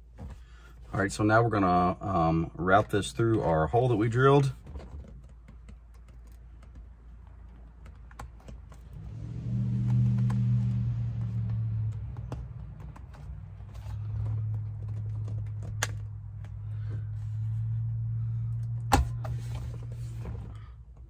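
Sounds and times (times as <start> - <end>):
plastic parts clicking and tapping: 4.6 - 8.8
low steady hum: 6.0 - 21.0.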